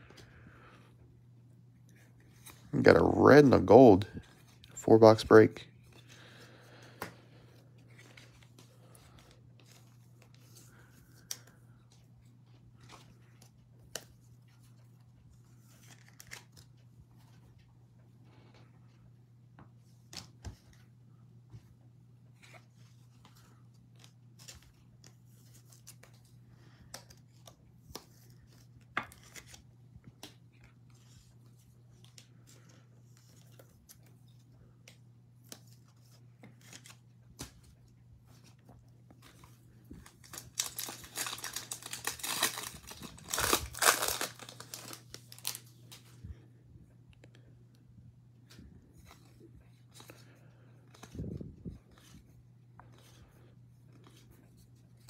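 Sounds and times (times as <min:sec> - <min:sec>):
low steady hum: 0:00.0 - 0:55.0
foil wrapper tearing and crinkling: 0:40.1 - 0:45.7.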